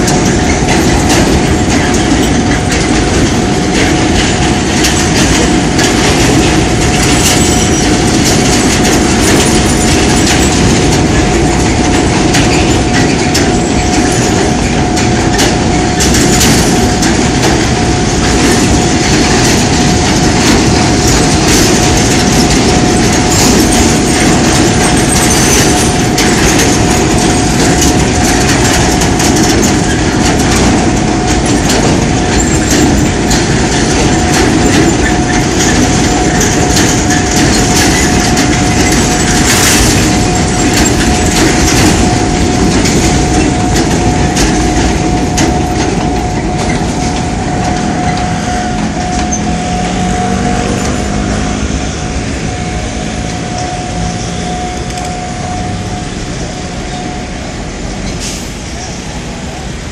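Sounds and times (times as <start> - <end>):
wagon wheels clicking over rail joints: 0.0 - 55.4
rolling wagons rumbling: 0.0 - 59.9
steady high tone: 33.0 - 58.6.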